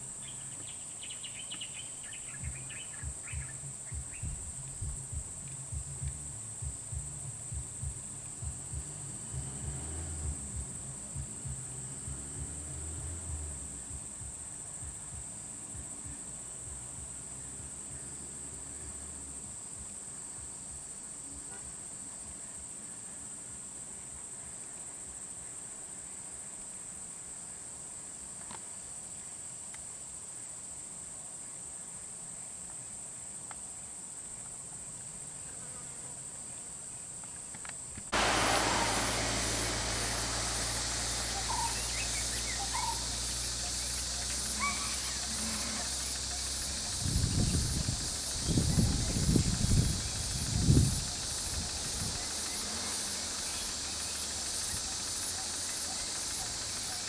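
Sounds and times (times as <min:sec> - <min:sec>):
insects droning: 0:00.0 - 0:57.0
low rumble: 0:02.4 - 0:17.3, 0:38.1 - 0:54.3.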